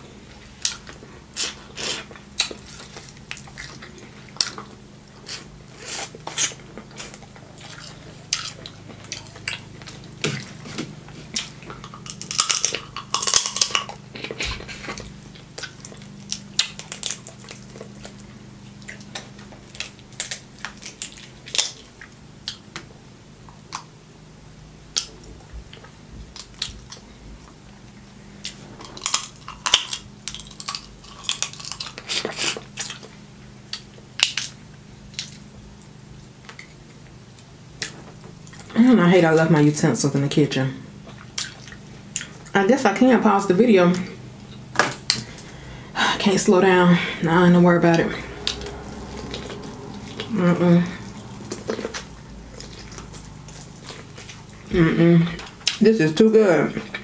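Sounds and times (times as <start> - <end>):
faint low hum: 0.0 - 57.0
chewing: 0.3 - 23.9, 24.9 - 38.8, 40.9 - 42.6, 47.8 - 55.8
crab shells cracking: 11.4 - 14.2, 15.1 - 21.9, 28.9 - 33.1.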